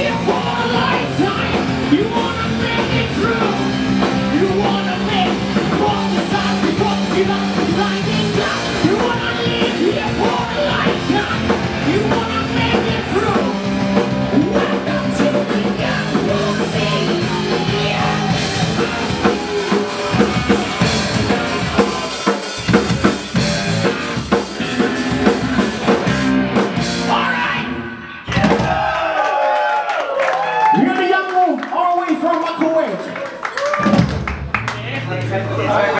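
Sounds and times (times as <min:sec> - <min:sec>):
person singing: 0:00.0 - 0:23.2
rock band playing: 0:00.0 - 0:29.0, 0:33.4 - 0:35.9.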